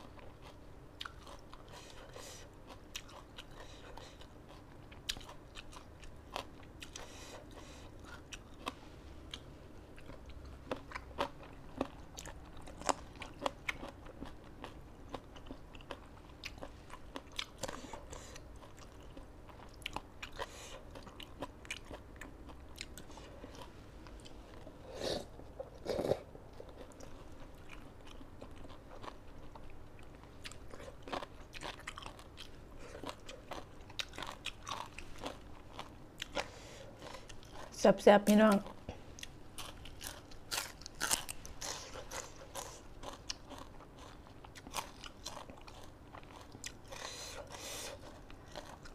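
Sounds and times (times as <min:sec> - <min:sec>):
chewing crunchy vegetables: 0:00.0 - 0:48.9.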